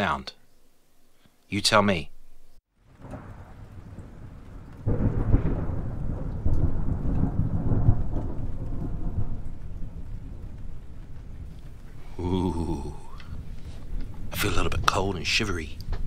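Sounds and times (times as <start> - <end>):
thunder rumbling and cracking: 2.8 - 16.0.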